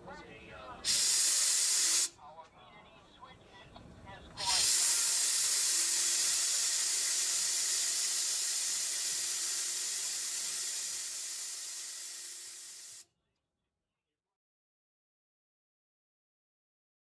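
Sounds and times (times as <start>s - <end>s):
air brake hissing: 0.8s - 2.2s, 4.4s - 13.0s.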